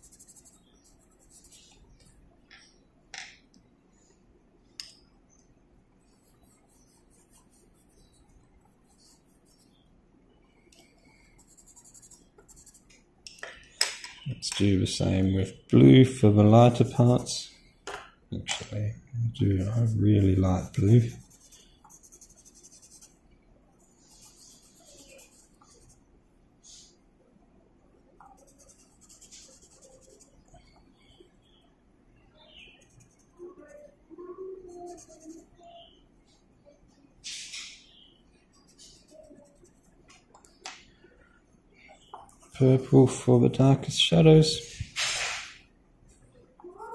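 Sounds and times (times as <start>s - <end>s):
pencils scratching on paper: 0.0s - 2.0s, 6.1s - 9.8s, 10.9s - 12.9s, 19.4s - 23.2s, 24.0s - 26.0s, 28.2s - 30.4s, 32.8s - 34.0s, 34.6s - 35.5s, 38.5s - 40.0s.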